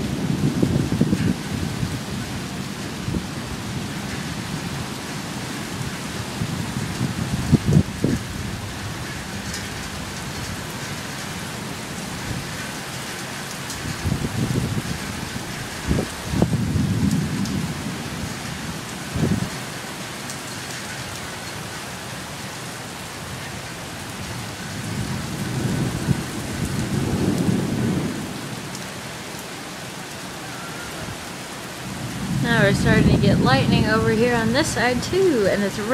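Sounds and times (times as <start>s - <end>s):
thunder rumbling: 0.0s - 12.6s, 13.8s - 19.7s, 24.0s - 29.1s, 30.8s - 35.9s
heavy rain falling: 0.0s - 35.9s.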